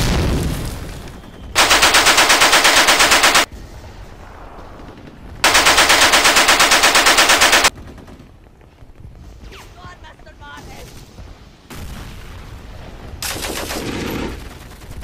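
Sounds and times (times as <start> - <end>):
machine gun firing bursts: 1.6 - 3.5, 5.4 - 8.2, 13.2 - 15.0.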